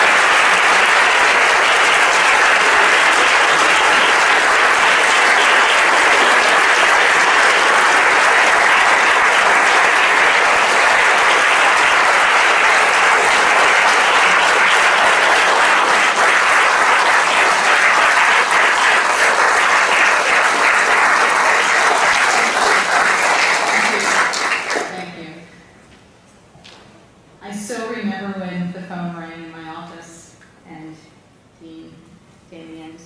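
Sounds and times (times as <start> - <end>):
audience applauding: 0.0 - 25.1.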